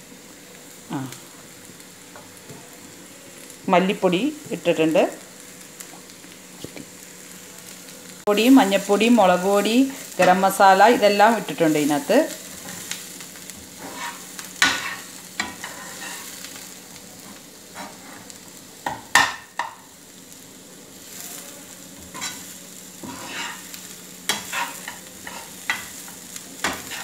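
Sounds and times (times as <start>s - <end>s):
onions sizzling: 0.0s - 27.0s
metal ladle scraping a wok: 23.0s - 23.6s.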